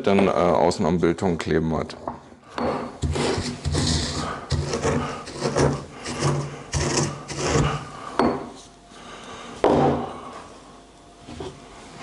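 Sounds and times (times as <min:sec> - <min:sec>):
pestle grinding in mortar: 0:02.8 - 0:08.5.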